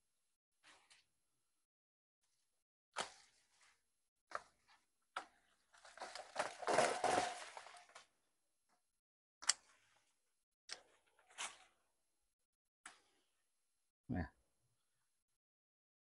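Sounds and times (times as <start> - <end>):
leaves and stems rustling: 5.8 - 8.0.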